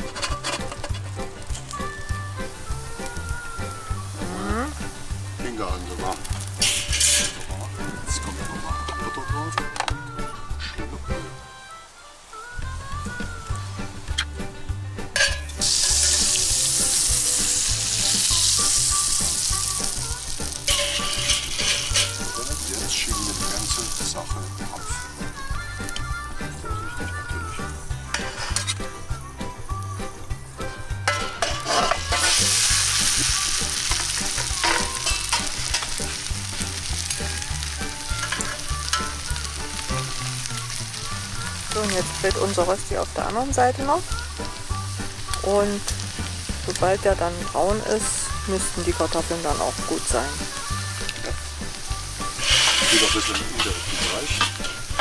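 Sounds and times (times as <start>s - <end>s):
metal spatula scraping in a pan: 0.0s - 1.7s, 6.4s - 7.5s, 15.2s - 22.4s, 28.1s - 28.9s, 31.1s - 36.3s, 38.0s - 39.9s, 52.2s - 55.0s
butter sizzling in skillet: 0.0s - 10.6s, 11.8s - 55.0s.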